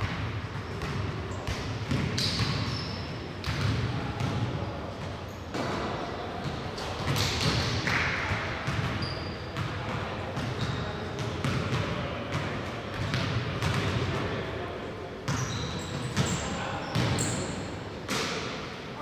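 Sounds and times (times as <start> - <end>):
basketball bouncing on court: 0.0 - 4.5, 5.5 - 14.2, 15.3 - 17.4
short high squeaks: 15.3 - 17.5.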